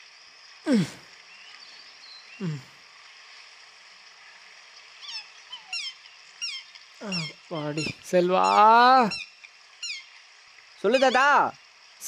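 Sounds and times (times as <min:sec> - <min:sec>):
steady outdoor hiss: 0:00.0 - 0:12.0
birds chirping: 0:00.7 - 0:02.8, 0:04.2 - 0:11.5.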